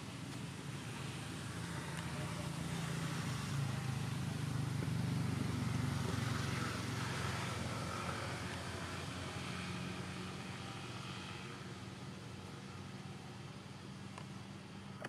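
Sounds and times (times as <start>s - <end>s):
vehicle engine hum: 0.0s - 15.0s.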